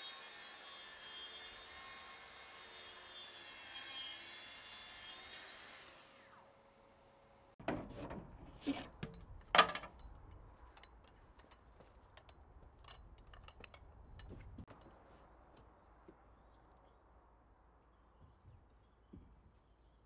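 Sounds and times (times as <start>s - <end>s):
wooden knocks and clatters: 7.6s - 14.9s.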